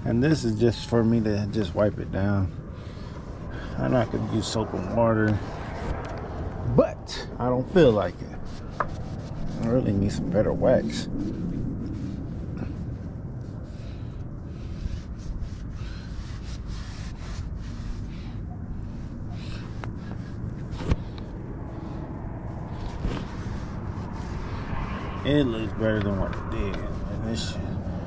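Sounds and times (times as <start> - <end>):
steady low rumble: 0.0 - 28.0
rag wiping swishes: 22.6 - 28.0.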